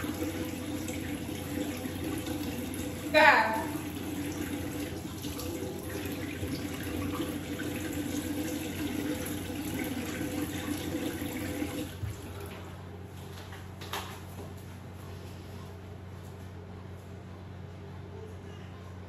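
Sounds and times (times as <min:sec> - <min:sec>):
sink tap running: 0:00.0 - 0:12.5.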